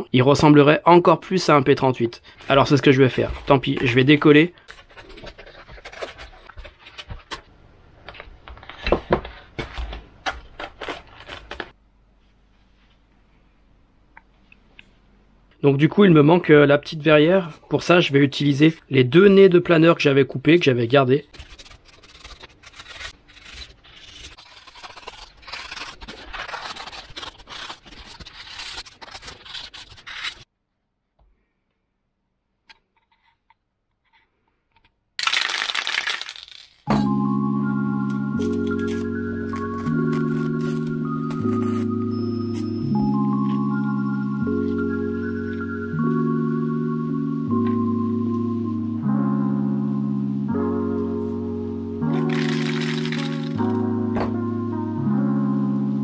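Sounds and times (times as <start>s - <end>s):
foam parts rustling and squeaking: 3.1s - 7.4s, 21.3s - 30.5s, 38.4s - 42.8s, 52.2s - 53.6s.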